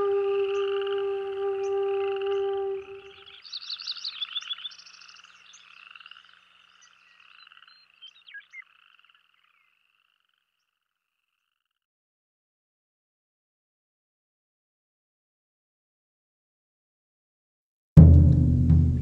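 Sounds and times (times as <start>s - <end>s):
animals chirping and trilling: 0.4s - 10.7s.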